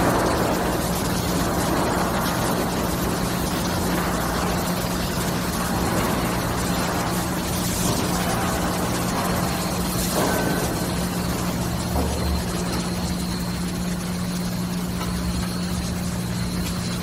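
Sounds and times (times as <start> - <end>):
industrial machinery hum: 0.0 - 17.0.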